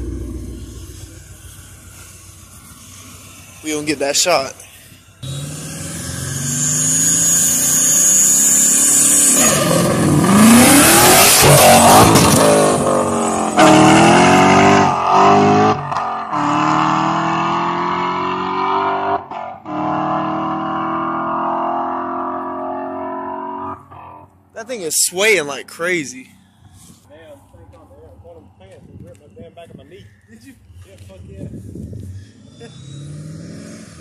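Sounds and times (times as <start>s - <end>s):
car engine revving and accelerating: 5.2s - 24.2s, 31.9s - 34.0s.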